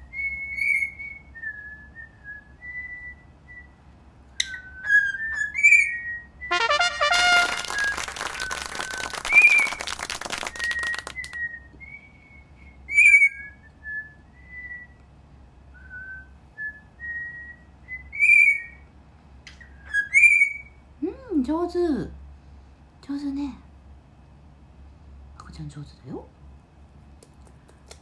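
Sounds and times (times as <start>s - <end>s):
cockatiel whistling: 0.2s - 3.8s, 4.4s - 6.8s, 7.7s - 15.0s, 15.8s - 18.8s, 19.8s - 20.7s
rapid clicking patter: 7.0s - 11.4s.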